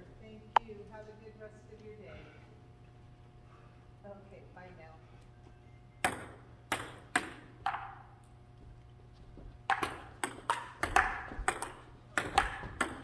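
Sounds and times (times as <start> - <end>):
table tennis ball hits: 6.0 - 8.0, 9.7 - 13.0.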